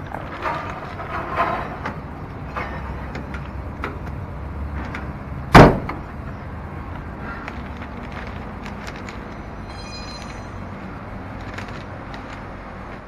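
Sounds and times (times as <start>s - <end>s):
car door slamming: 5.5s - 6.1s.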